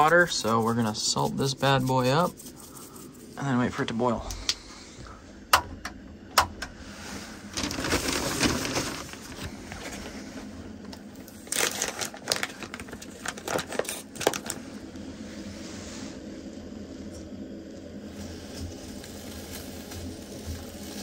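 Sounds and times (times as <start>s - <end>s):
plastic packaging crinkling: 7.4s - 10.2s, 10.8s - 14.6s.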